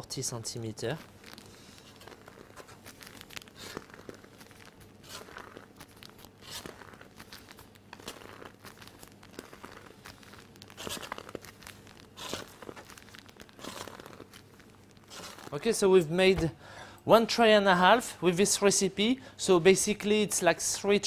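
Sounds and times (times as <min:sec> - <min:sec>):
plastic piping bag crinkling: 0:00.1 - 0:16.4.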